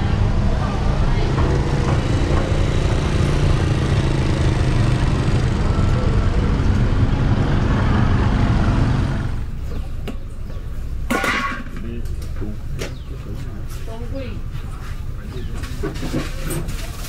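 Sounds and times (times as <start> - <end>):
motorcycle engine running: 0.0 - 10.7.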